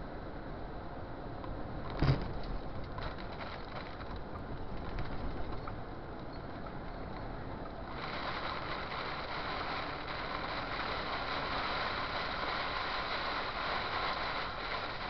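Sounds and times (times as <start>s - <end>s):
truck engine and road noise: 0.0s - 15.0s
hail downpour on cab: 7.9s - 15.0s.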